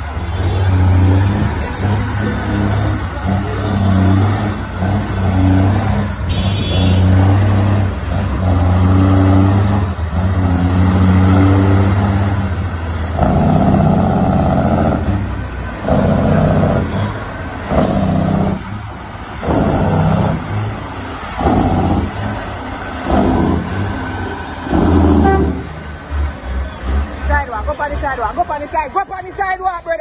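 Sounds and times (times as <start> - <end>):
diesel engine pulling a load: 0.0 - 30.0.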